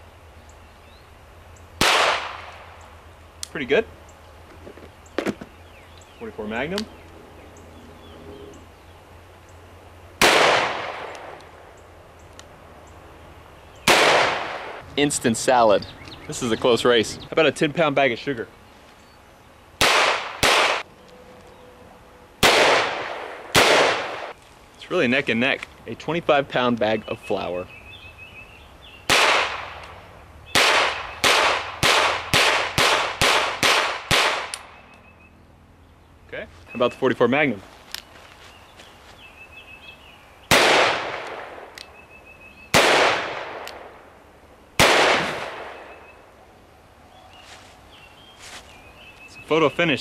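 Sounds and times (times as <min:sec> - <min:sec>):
pistol shots with echo: 0:01.8 - 0:02.8, 0:10.2 - 0:11.4, 0:13.9 - 0:14.8, 0:19.8 - 0:20.8, 0:22.4 - 0:24.3, 0:29.1 - 0:34.8, 0:40.5 - 0:41.8, 0:42.7 - 0:44.0, 0:44.8 - 0:46.1
revolver gunshot: 0:01.8 - 0:02.8, 0:10.2 - 0:11.4, 0:13.9 - 0:14.8, 0:19.8 - 0:20.8, 0:22.4 - 0:24.4, 0:29.1 - 0:29.9, 0:30.5 - 0:34.8, 0:40.5 - 0:41.8, 0:42.7 - 0:44.1, 0:44.8 - 0:46.1.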